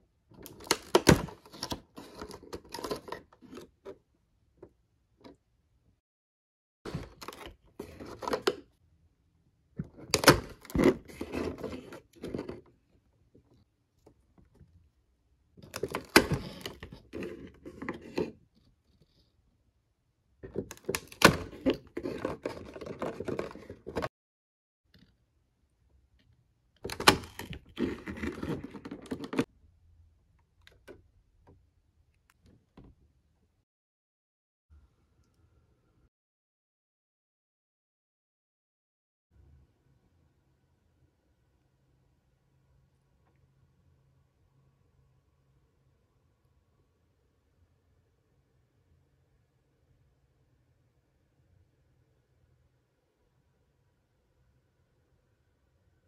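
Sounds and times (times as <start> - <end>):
plastic packaging crinkling and clicking: 0.4 - 3.7
cardboard box doors opening: 9.9 - 12.6, 15.6 - 18.3, 20.5 - 24.1.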